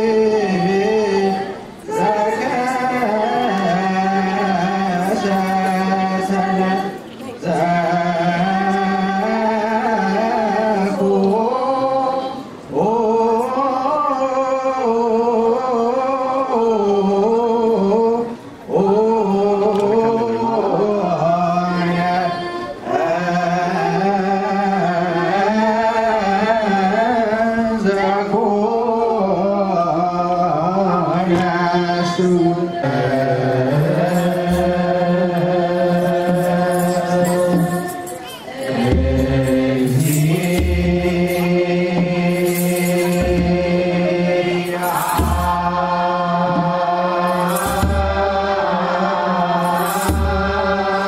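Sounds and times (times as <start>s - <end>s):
group singing spiritual song: 0.0s - 51.0s.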